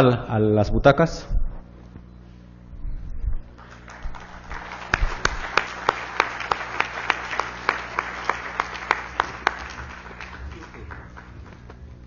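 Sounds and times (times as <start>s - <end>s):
audience applauding: 3.6s - 11.8s
sharp claps near microphone: 3.6s - 11.8s.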